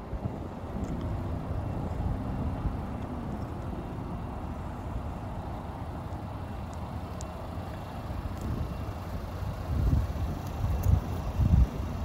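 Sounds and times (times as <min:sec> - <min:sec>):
low rumble of vehicles: 0:00.0 - 0:12.0.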